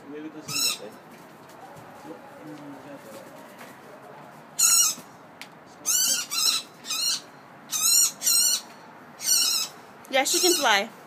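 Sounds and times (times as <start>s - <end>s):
bird distress calls: 0.5s - 0.9s, 4.6s - 5.1s, 5.8s - 10.9s.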